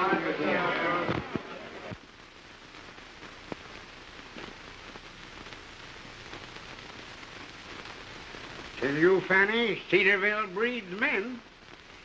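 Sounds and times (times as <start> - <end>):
old film soundtrack hiss: 0.0 - 12.0.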